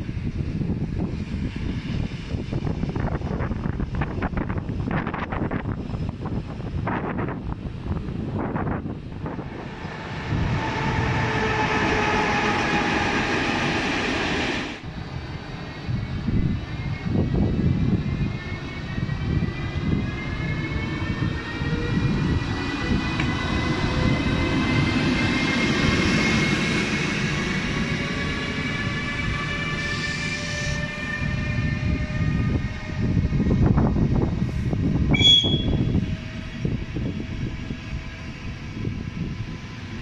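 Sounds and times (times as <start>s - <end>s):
electric locomotive traction whine: 0.0s - 40.0s
train rumble: 0.0s - 40.0s
locomotive humming: 7.1s - 40.0s.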